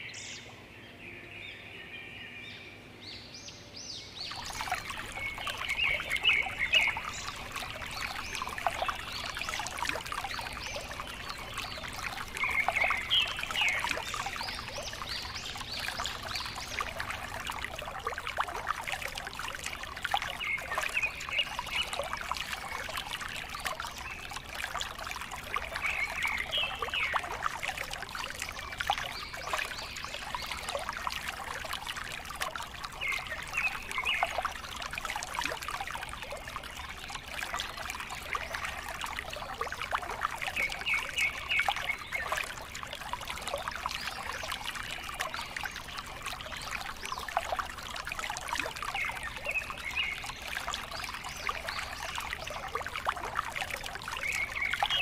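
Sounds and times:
water trickling and splashing: 3.8 - 55.0.

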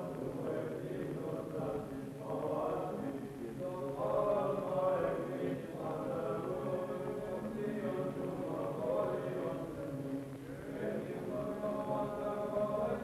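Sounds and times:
men chanting: 0.0 - 13.0.

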